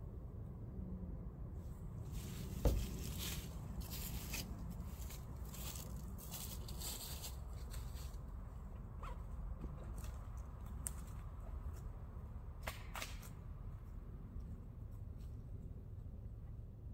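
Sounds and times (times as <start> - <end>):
footsteps crunching dry leaves: 2.1 - 8.5
sharp thump: 2.6 - 3.0.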